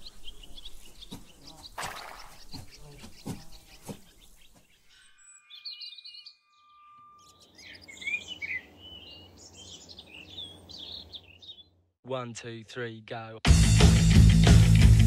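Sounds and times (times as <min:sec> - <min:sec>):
birds chirping and twittering: 0:00.0 - 0:11.9.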